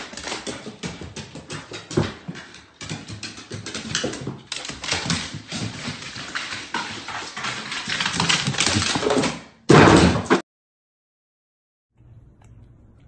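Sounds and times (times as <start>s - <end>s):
dog claws clattering down stairs: 0.0s - 10.4s.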